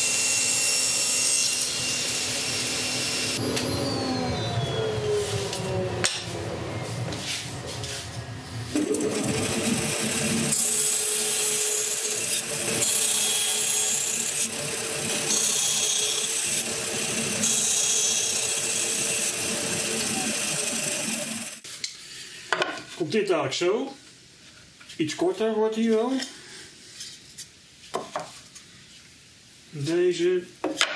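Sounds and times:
band saw cutting plywood: 0:00.0 - 0:06.4, 0:08.7 - 0:21.6
table saw winding down: 0:01.3 - 0:06.4, 0:08.7 - 0:21.6.

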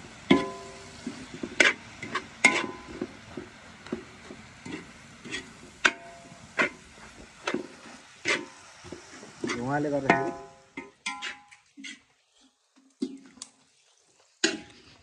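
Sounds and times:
food sizzling: 0:00.0 - 0:15.0
metal skimmer clanking in wok: 0:00.3 - 0:00.9, 0:01.6 - 0:03.0, 0:09.4 - 0:11.6.

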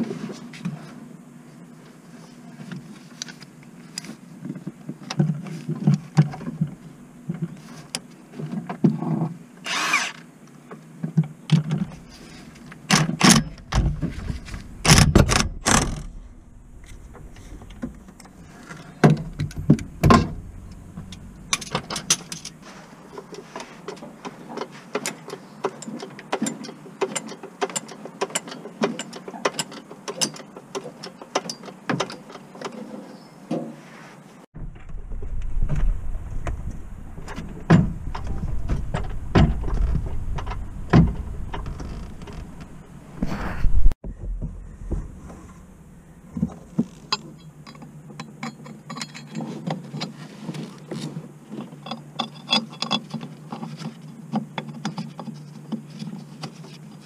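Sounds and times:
metal tools clanking: 0:13.3 - 0:32.9, 0:46.6 - 0:50.2, 0:51.6 - 0:53.9.

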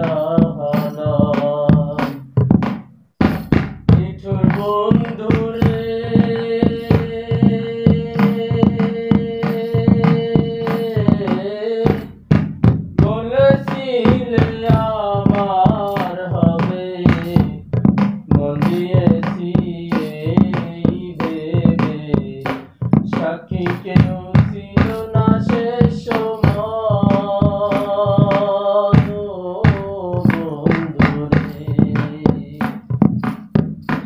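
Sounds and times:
man singing folk song: 0:00.0 - 0:02.4, 0:03.9 - 0:12.2, 0:13.0 - 0:34.0
steady percussive beat: 0:00.0 - 0:34.0.

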